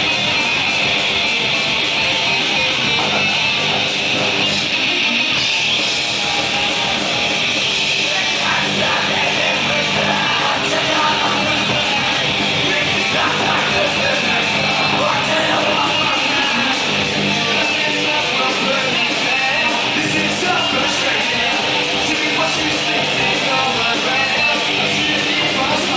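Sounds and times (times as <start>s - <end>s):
drum kit: 0.0s - 25.9s
electric bass: 0.0s - 25.9s
electric guitar: 0.0s - 25.9s
person singing: 5.4s - 25.9s.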